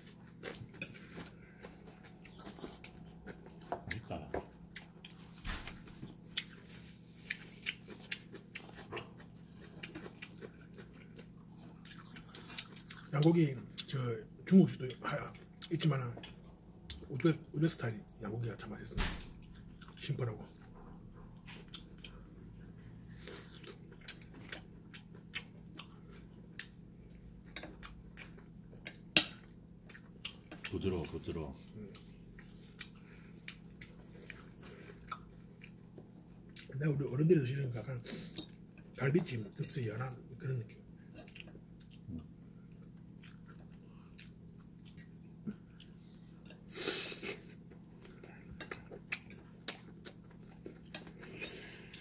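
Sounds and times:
chewing: 0.0 - 14.0, 14.7 - 17.5, 19.4 - 36.8, 40.6 - 52.0.

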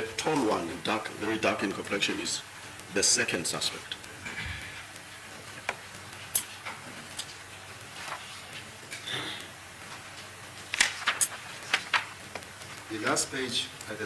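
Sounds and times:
paper rustling: 7.8 - 8.7, 9.9 - 13.2.

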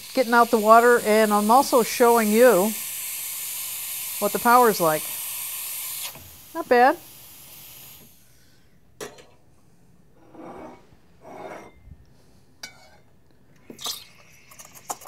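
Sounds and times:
faint steam hiss: 0.0 - 8.8.

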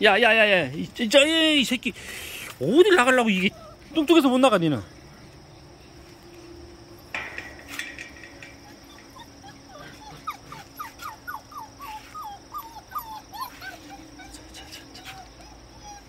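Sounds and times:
dog whining: 3.3 - 4.0, 8.4 - 16.0.

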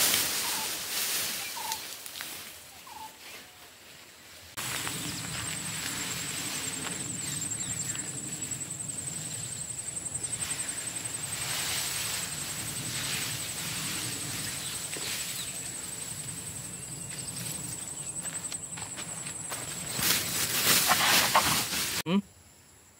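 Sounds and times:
high-pitched insect drone: 4.6 - 21.2
elephant tearing through tall grass: 10.2 - 16.3, 19.9 - 22.0.

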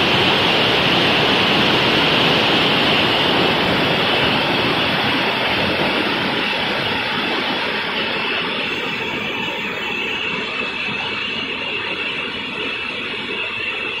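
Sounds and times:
river rushing over stones: 0.0 - 10.9.

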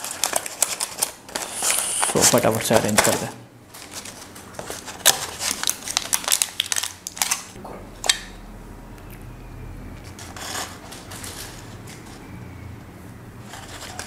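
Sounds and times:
food packaging crinkling: 0.0 - 7.6, 13.4 - 14.0.

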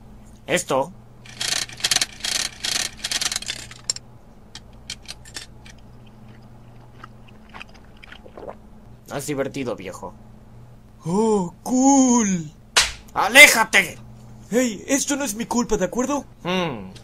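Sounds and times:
gumball machine crank rattling: 1.2 - 4.0, 4.6 - 5.8
chewing crunches: 5.0 - 8.6.

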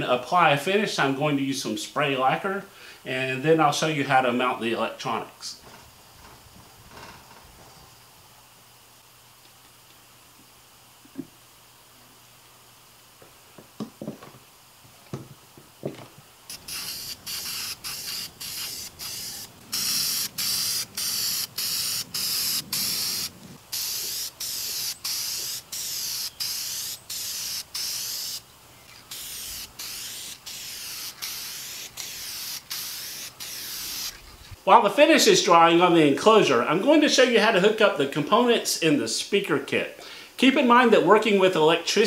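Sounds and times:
aerosol can hissing: 16.5 - 34.6.

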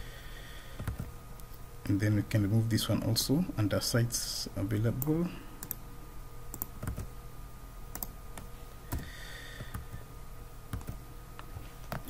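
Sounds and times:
faint steady hum: 0.0 - 12.0
computer keys and mouse clicking: 0.8 - 1.1, 5.0 - 5.8, 6.5 - 7.1, 7.9 - 10.0, 10.7 - 11.0.

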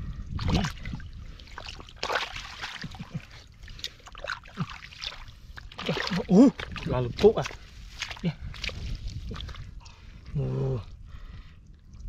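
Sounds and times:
muddy water splashing: 0.3 - 11.4
fish thrashing in water: 0.4 - 9.8.

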